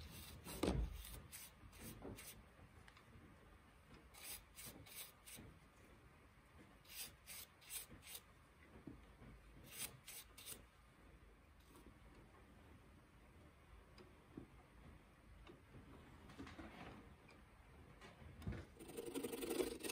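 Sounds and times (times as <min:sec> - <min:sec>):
rubbing strokes on wooden goblet: 0:18.8 - 0:19.9.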